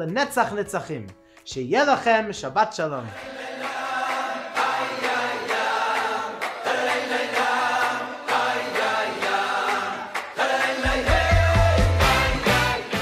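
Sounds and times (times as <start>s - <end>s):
voices singing chant-like melody: 3.1s - 13.0s.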